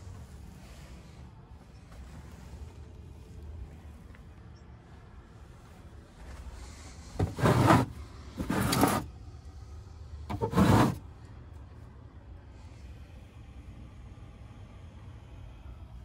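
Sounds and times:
wooden cabinet doors sliding: 7.2s - 9.1s, 10.3s - 11.0s.

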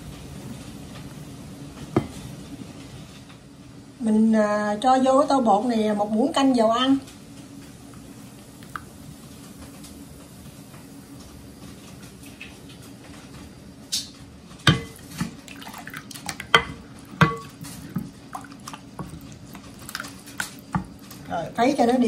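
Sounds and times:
faint steady hum: 0.0s - 22.0s
batter splashing and dripping: 8.6s - 9.0s, 14.7s - 22.0s.

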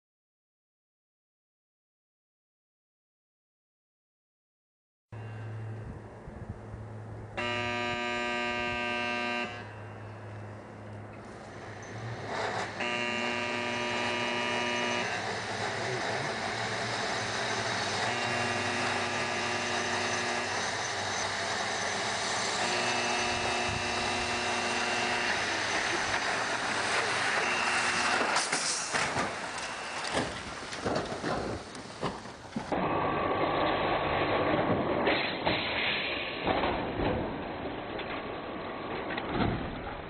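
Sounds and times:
car running: 5.2s - 35.6s
horn blasts: 7.4s - 10.5s, 12.5s - 20.9s, 22.5s - 30.2s.

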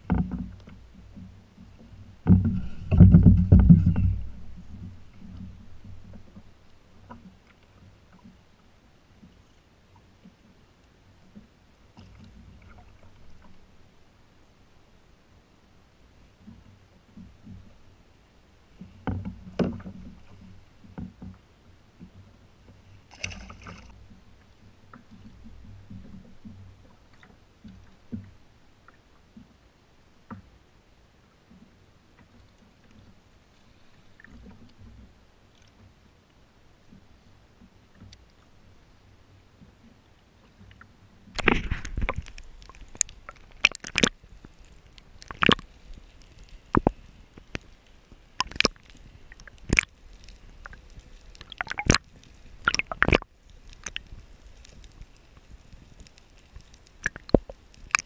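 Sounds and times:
muffled underwater knocks: 0.0s - 6.5s
water sloshing and gurgling: 0.0s - 14.4s, 18.6s - 29.6s, 31.5s - 36.0s, 39.6s - 58.0s
sea water lapping: 41.2s - 58.0s.

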